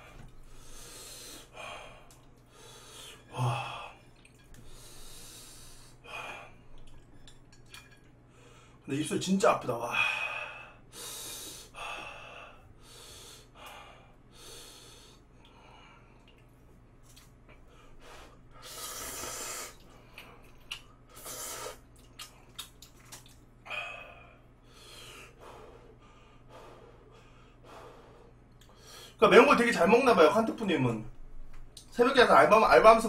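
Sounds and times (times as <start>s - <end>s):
man breathing heavily: 0.0s - 4.0s, 4.6s - 6.8s, 9.8s - 16.3s, 17.6s - 20.5s, 23.6s - 29.2s
slurping noodles: 18.6s - 19.9s
wet chewing clicks: 19.8s - 20.9s, 21.8s - 23.5s.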